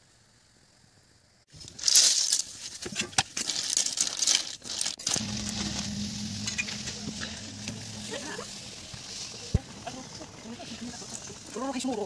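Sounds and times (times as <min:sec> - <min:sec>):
oil crackling and spitting: 0:01.6 - 0:12.0
snails sizzling in hot oil: 0:01.8 - 0:12.0
low hum: 0:05.1 - 0:11.6.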